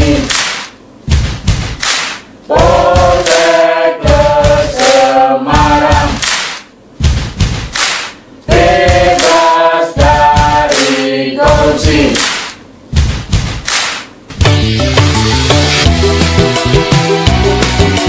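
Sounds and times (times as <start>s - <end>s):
group chanting a cheer: 0.0s - 0.6s, 2.5s - 6.5s, 8.5s - 12.5s
sharp thumps: 0.3s - 3.3s, 7.0s - 9.3s.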